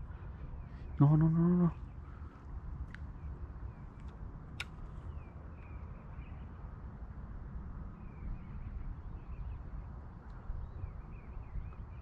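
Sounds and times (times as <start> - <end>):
small birds chirping: 0.0 - 6.6
wind rumble on microphone: 0.0 - 12.0.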